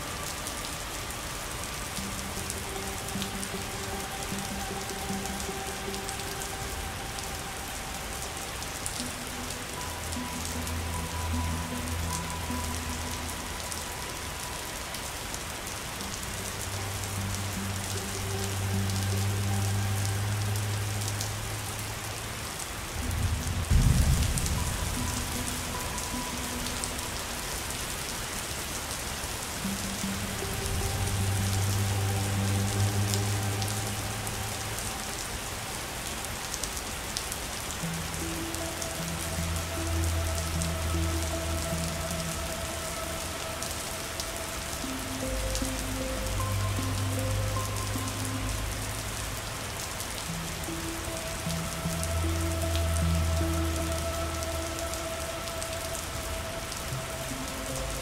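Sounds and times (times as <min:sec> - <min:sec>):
rain pattering: 0:00.0 - 0:58.0
soft ambient music: 0:00.0 - 0:58.0
deep rumble of thunder: 0:23.2 - 0:24.9.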